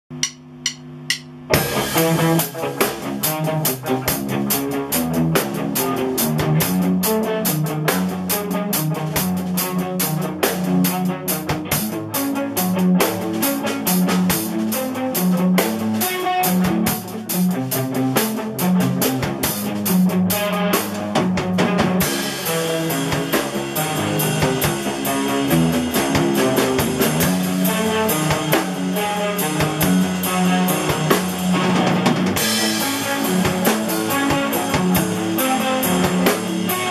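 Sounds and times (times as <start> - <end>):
sharp drum stick ticks: 0.1 - 1.5
rock drum kit: 0.1 - 36.9
electric guitar: 1.5 - 36.9.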